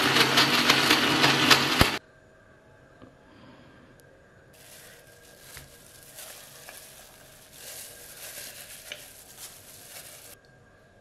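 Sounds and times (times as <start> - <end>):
wet mince squelching: 4.6 - 10.4.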